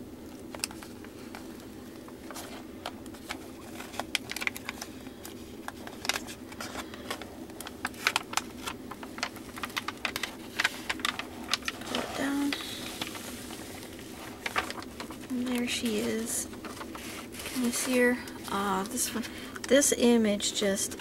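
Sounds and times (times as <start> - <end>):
plastic film crinkling: 0.2 - 19.3.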